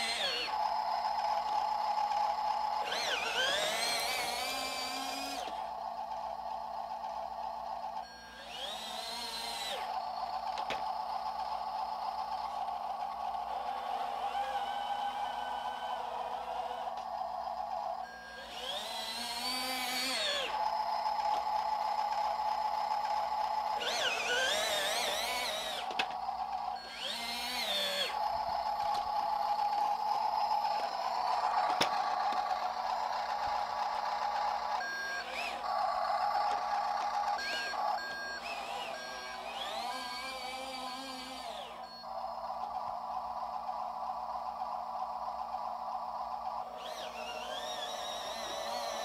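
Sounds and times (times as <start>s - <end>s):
toy truck electric motor whining: 0.0s - 49.0s
steady hum: 20.2s - 39.8s.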